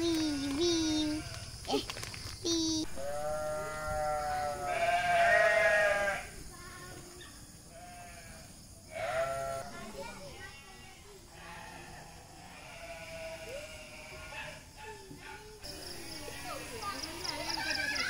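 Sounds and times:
livestock bleating: 0:03.0 - 0:06.3, 0:07.7 - 0:09.7, 0:11.3 - 0:14.3.

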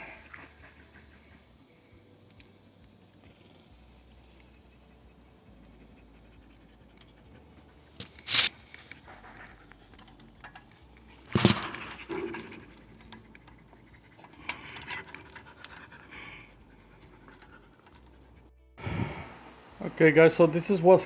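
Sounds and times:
dog panting: 0:00.0 - 0:02.1, 0:03.2 - 0:08.0, 0:08.6 - 0:11.2, 0:11.9 - 0:18.5.

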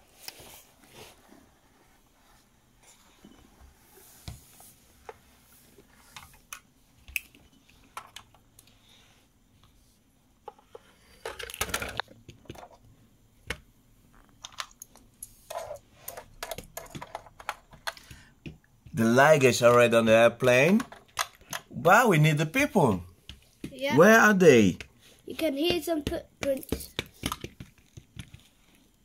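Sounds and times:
plastic toy pieces clicking: 0:11.2 - 0:12.7, 0:16.1 - 0:18.2, 0:20.7 - 0:21.7.

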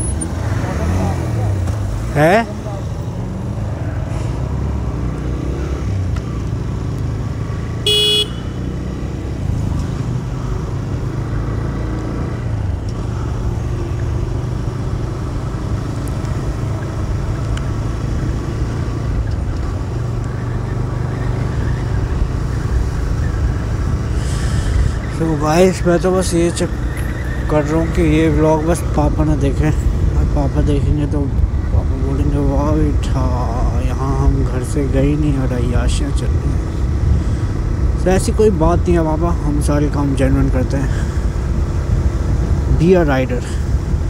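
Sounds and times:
road and wind noise: 0:00.0 - 0:44.0
horn beep: 0:07.8 - 0:08.6.

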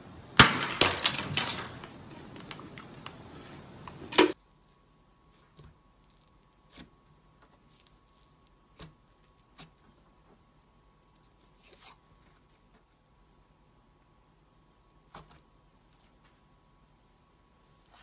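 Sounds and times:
fingers squishing slime: 0:05.2 - 0:13.3.

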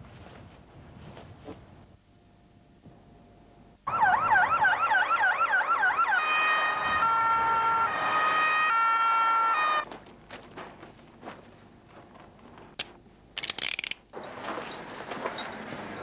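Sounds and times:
police car siren: 0:03.8 - 0:09.9.

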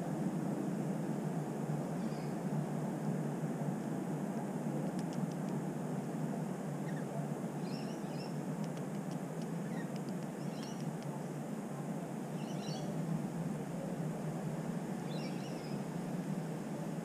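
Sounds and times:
low rushing background noise: 0:00.0 - 0:17.0
faint bird chirps: 0:02.0 - 0:02.4, 0:06.8 - 0:08.9, 0:09.6 - 0:11.2, 0:12.3 - 0:13.0, 0:15.0 - 0:15.9
light clicks: 0:04.8 - 0:05.6, 0:08.6 - 0:11.2.

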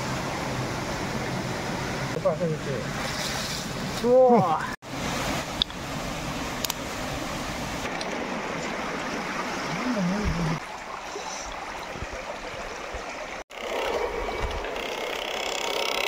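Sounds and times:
stream water rushing over rocks: 0:00.0 - 0:16.0.

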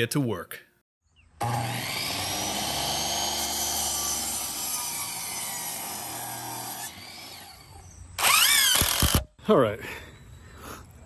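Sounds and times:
miter saw cutting board: 0:01.4 - 0:09.3.

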